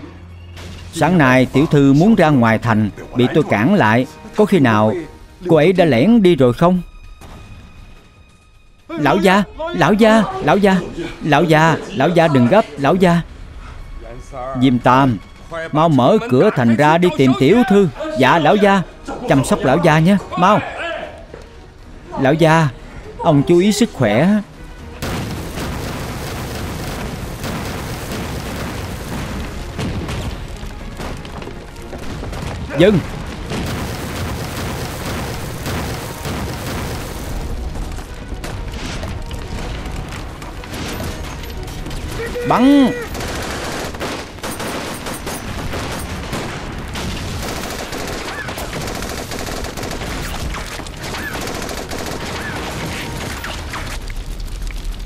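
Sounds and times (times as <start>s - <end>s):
booming explosions: 24.8s - 55.0s
continuous gunfire: 25.0s - 54.1s.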